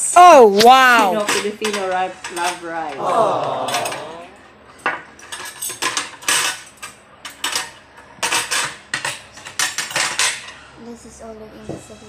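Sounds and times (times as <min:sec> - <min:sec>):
cutlery clinking on plates: 0:01.1 - 0:04.2, 0:04.8 - 0:10.6
person saying aww: 0:03.0 - 0:04.4.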